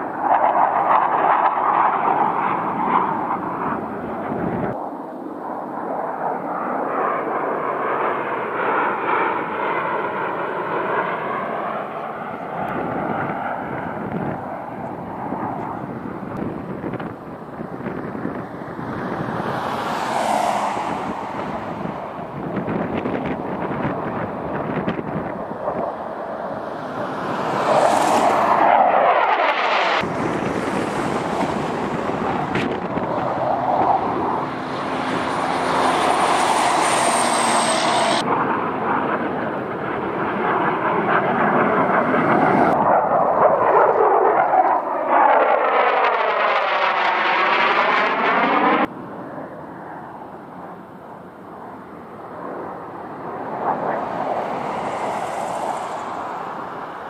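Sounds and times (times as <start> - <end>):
fighter jets flying past: 0.0 - 57.0
phasing jet whoosh: 16.6 - 38.5, 52.3 - 57.0.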